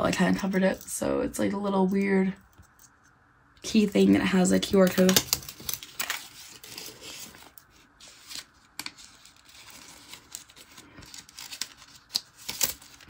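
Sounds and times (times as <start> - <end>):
paper rustling: 4.8 - 13.0.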